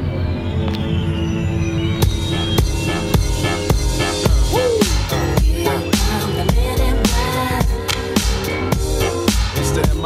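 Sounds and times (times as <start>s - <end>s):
drum beat with bass and snare: 2.0s - 10.0s.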